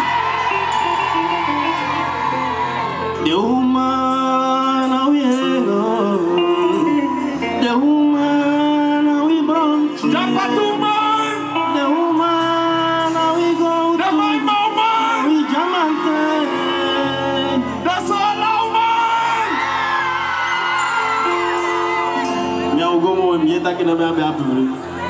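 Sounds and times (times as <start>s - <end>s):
live band music: 0.0s - 25.0s
man singing into a microphone: 3.1s - 19.6s.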